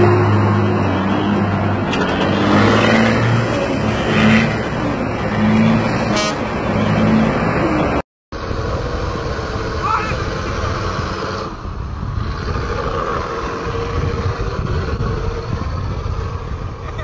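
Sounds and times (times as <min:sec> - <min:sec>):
diesel truck engine drone: 0:00.0 - 0:17.0
truck horn toots: 0:06.0 - 0:06.5.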